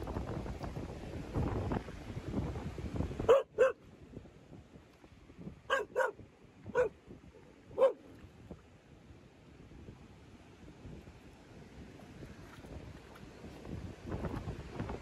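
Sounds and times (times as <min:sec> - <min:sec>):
wind buffeting microphone: 0:00.0 - 0:15.0
dog barking: 0:03.3 - 0:03.8, 0:05.7 - 0:06.9, 0:07.8 - 0:08.0.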